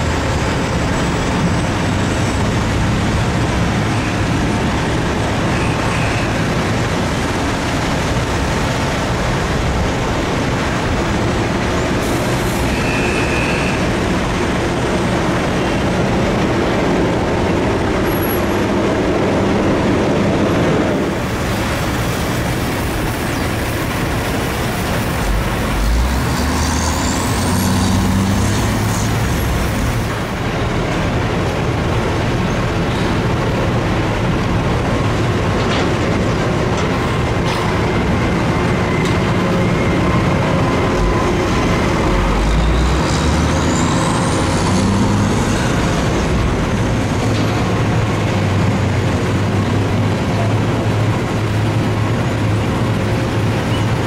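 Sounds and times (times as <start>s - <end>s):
diesel engines running: 0.0s - 54.0s.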